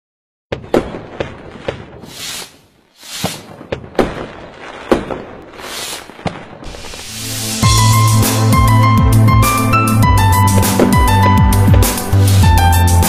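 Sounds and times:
firework bangs and cracks: 0.5s - 8.5s, 10.2s - 13.0s
hissing whooshes: 2.0s - 3.6s, 5.6s - 7.8s.

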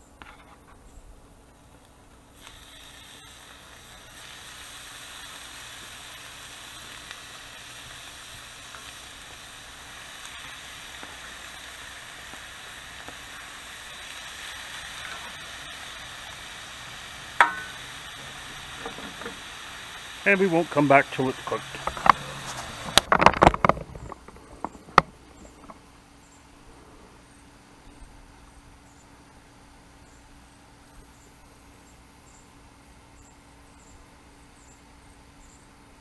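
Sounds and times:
bacon sizzling in a frying pan: 2.4s - 23.5s.

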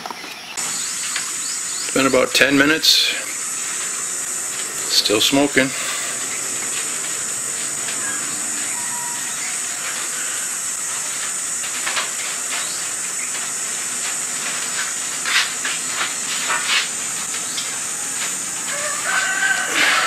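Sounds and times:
gas burner hissing: 0.5s - 20.0s
crackles and ticks from pot: 10.8s - 19.7s.

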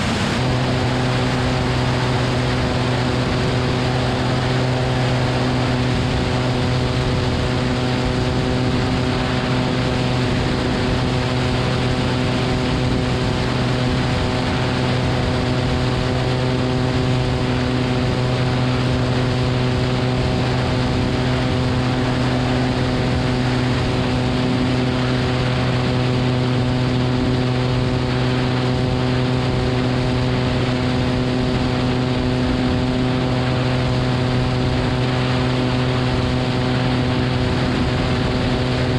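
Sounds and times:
propeller plane engine droning: 0.0s - 38.9s
rush of airflow: 0.0s - 38.9s.

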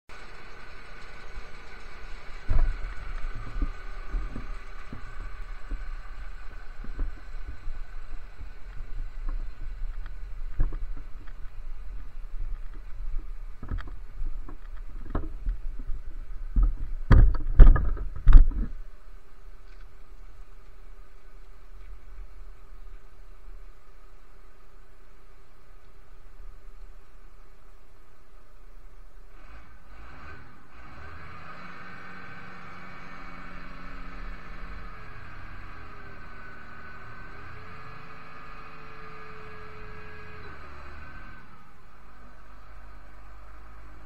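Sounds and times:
wind and handling thumps on microphone: 2.4s - 19.0s.

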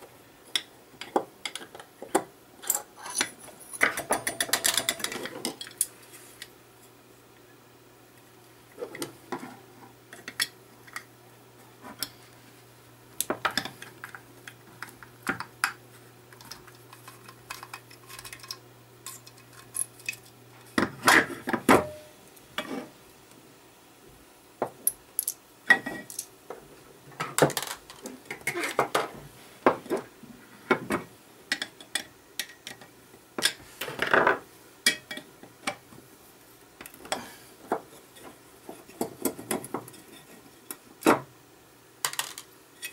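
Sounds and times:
low steady hum: 0.0s - 42.9s
clicks and clinks of metal parts: 2.6s - 5.9s, 26.0s - 26.3s.

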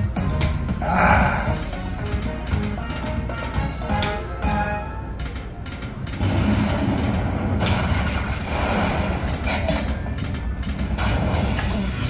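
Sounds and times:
slot machine win sound: 1.7s - 5.2s.

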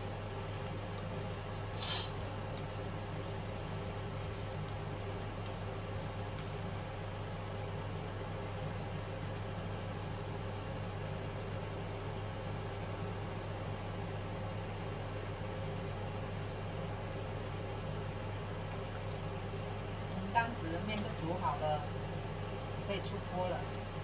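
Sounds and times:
kitchen appliance humming: 0.0s - 24.0s
noodles sizzling in frying pan: 0.0s - 24.0s.

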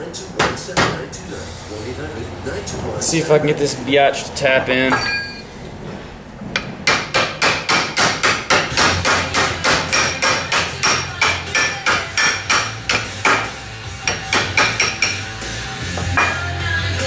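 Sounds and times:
hammer tapping on metal: 6.6s - 15.2s.

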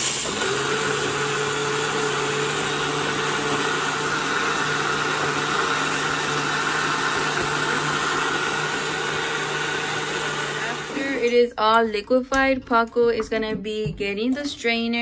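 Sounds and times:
blender running: 0.0s - 11.4s.

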